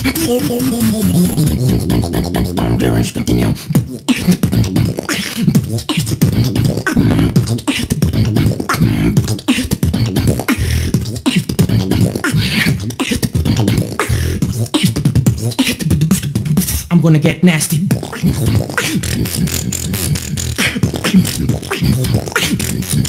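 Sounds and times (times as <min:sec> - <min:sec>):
hissing vocal hi-hat sounds: 0:00.0 - 0:17.0, 0:17.7 - 0:23.0
deep wobbling vocal bass: 0:00.0 - 0:23.0
vocal kick and snare hits: 0:03.7 - 0:16.7.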